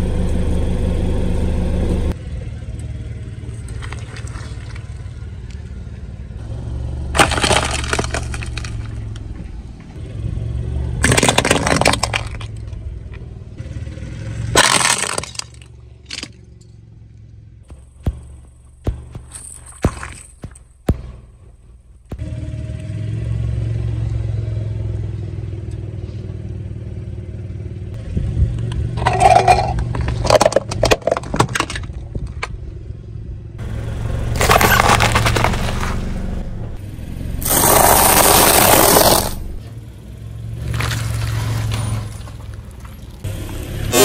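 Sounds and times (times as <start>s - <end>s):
car engine humming: 0.0s - 44.0s
tyre crushing objects on asphalt: 7.1s - 9.8s, 10.9s - 12.9s, 14.5s - 16.6s, 17.6s - 22.2s, 34.3s - 36.4s, 37.4s - 39.6s, 40.6s - 44.0s.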